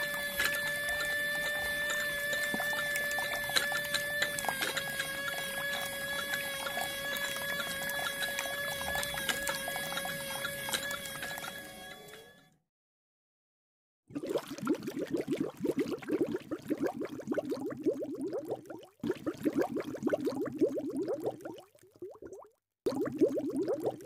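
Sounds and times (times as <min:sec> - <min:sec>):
water splashing into tank: 0:00.0 - 0:12.3, 0:14.1 - 0:24.0
small motor whining: 0:00.0 - 0:12.6.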